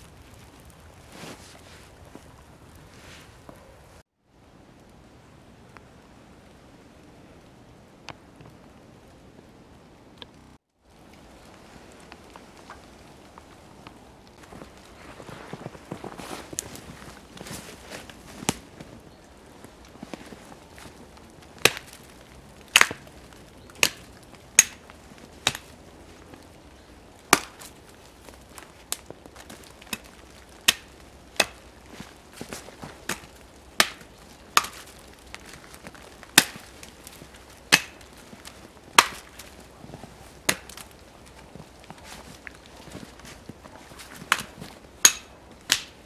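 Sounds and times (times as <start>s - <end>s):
axe chopping wood: 21.6s - 22.1s, 22.7s - 23.1s, 23.8s - 25.7s, 27.3s - 27.8s, 29.0s - 31.7s, 32.4s - 36.9s, 37.7s - 38.2s, 38.9s - 39.6s, 40.4s - 40.9s, 44.0s - 46.0s.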